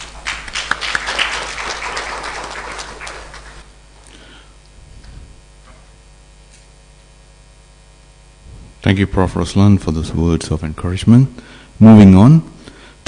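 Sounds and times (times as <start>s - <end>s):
audience applauding: 0.0s - 3.6s
electrical mains hum: 0.0s - 13.0s.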